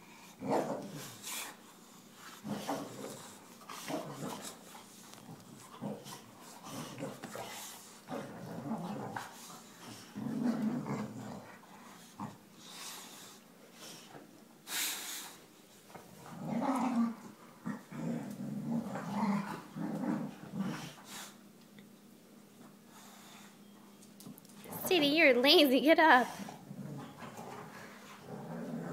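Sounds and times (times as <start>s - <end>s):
dogs growling: 0.1s - 14.3s, 15.9s - 21.4s, 26.3s - 28.9s
rustle: 0.3s - 21.4s.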